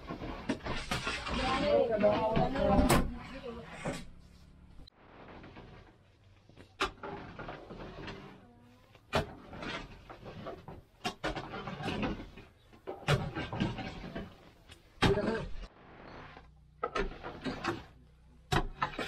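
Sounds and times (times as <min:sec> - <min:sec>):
metal scoop scraping a pan: 0:00.0 - 0:02.7, 0:09.1 - 0:14.7, 0:15.6 - 0:19.0.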